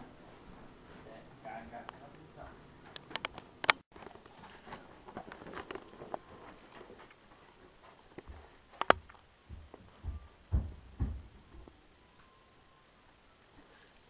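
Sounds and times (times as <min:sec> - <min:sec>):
low thump: 0:09.5 - 0:11.7.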